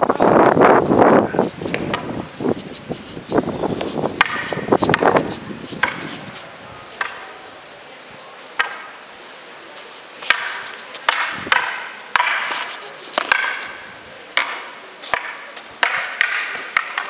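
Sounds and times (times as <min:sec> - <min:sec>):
wooden staffs clacking: 0:01.5 - 0:07.4, 0:08.6 - 0:09.0, 0:10.2 - 0:17.0.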